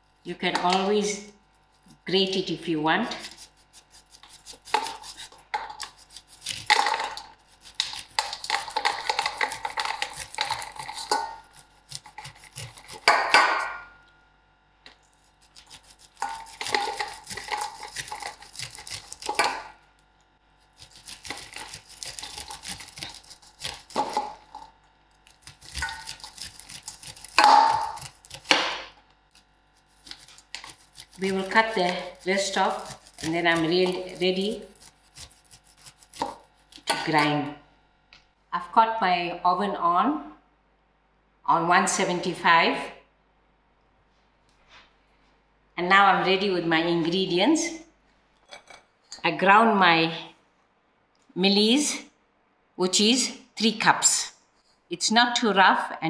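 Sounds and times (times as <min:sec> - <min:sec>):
knife scraping corn cob: 0:03.0 - 0:13.6, 0:15.0 - 0:19.7, 0:20.6 - 0:37.2.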